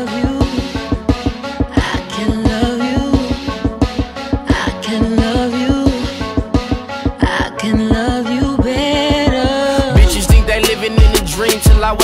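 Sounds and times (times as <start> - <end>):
hip-hop track: 0.0 - 12.0
bending vocal or synth lines: 7.2 - 12.0
deep bass kick: 9.9 - 12.0.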